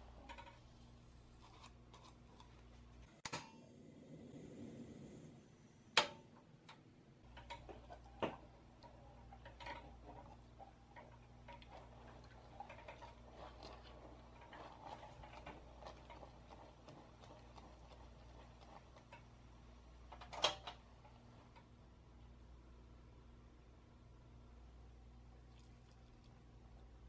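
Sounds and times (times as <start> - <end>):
spatula scraping a saucepan: 0.0 - 2.7, 7.4 - 19.2.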